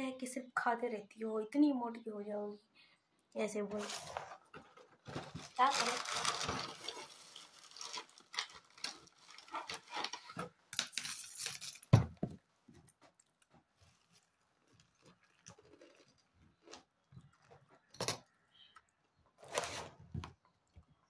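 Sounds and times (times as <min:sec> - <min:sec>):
cereal packet crinkling: 0:05.1 - 0:12.0, 0:13.2 - 0:17.5.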